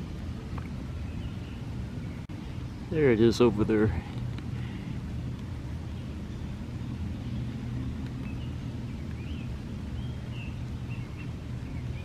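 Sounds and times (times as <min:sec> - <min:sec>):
steady low rumble: 0:00.0 - 0:12.0
bird chirps: 0:05.9 - 0:12.0.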